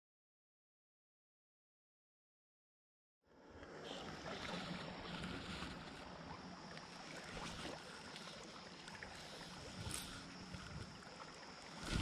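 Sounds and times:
flowing creek water: 3.3s - 12.0s.

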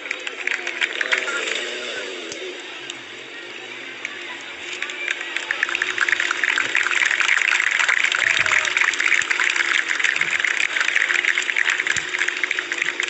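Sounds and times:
crowd applauding: 0.0s - 2.6s, 3.5s - 13.0s
motorcycle engine running: 0.0s - 3.8s.

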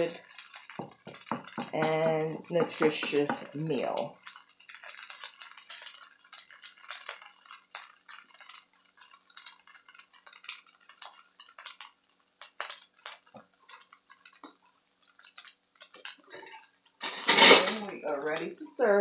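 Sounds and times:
wooden spoon scraping a wok: 15.4s - 18.4s.

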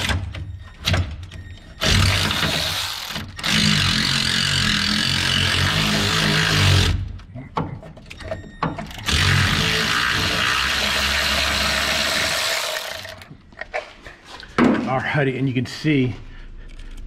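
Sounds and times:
electric ratchet running: 1.8s - 7.0s, 8.9s - 13.3s.

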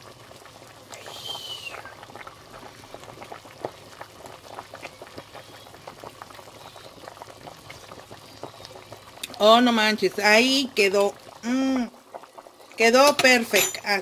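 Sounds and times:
broth bubbling at a boil: 0.0s - 14.0s
slurp with falling whistle: 0.9s - 2.0s.

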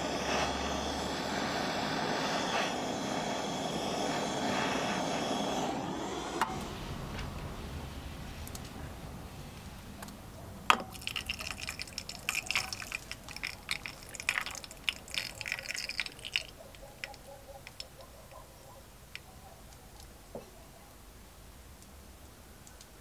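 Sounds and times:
sizzling and crackling: 0.0s - 18.4s
hot metal splashing into water: 10.7s - 17.9s.

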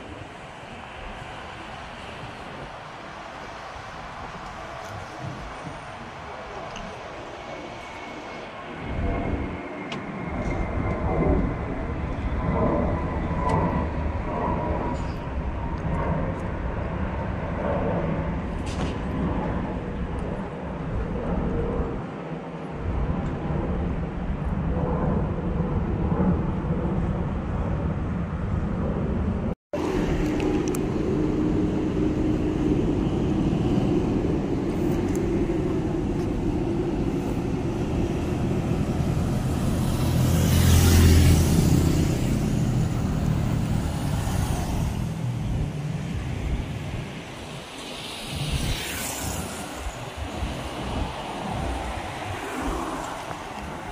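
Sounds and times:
road traffic: 0.0s - 24.3s, 26.8s - 53.9s
vehicle passing close: 29.8s - 46.8s.

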